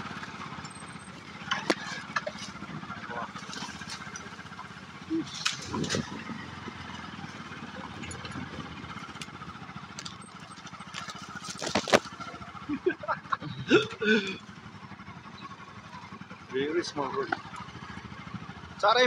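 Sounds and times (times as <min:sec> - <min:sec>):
grass brushing against bike: 0:00.0 - 0:07.8, 0:08.9 - 0:12.7
motorcycle engine running: 0:00.0 - 0:19.0.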